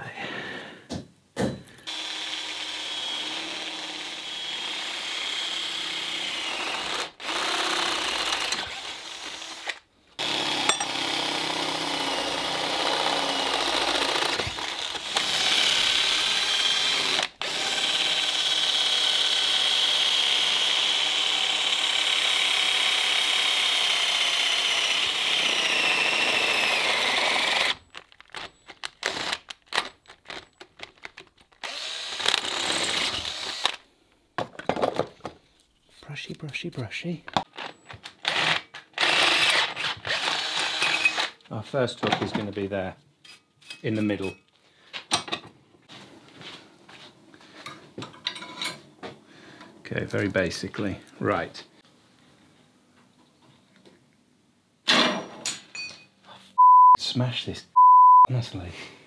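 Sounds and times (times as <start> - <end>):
power tool motor whine: 31.6 - 33.8.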